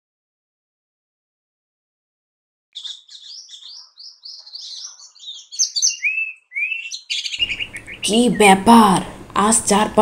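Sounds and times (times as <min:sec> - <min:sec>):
songbird chirping: 0:02.8 - 0:09.0.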